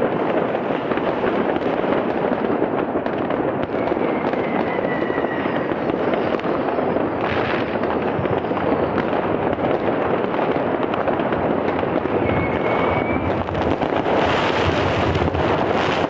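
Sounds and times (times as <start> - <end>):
firecrackers crackling and banging: 0.0 - 16.0
rocket whistle: 3.6 - 7.6, 12.2 - 13.7.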